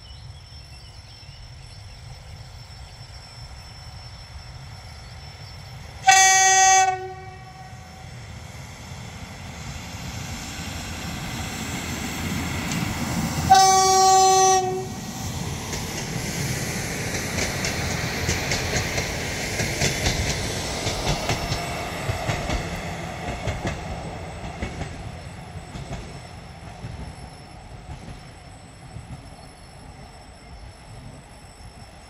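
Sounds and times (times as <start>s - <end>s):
train wheels clicking over rail joints: 14.6s - 30.0s.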